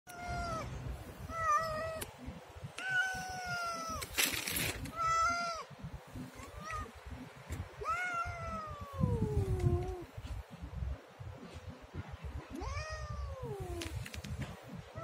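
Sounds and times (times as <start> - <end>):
cat meowing: 0.1 - 2.0, 2.8 - 4.1, 4.9 - 5.7, 6.4 - 7.0, 7.8 - 10.1, 12.5 - 13.8.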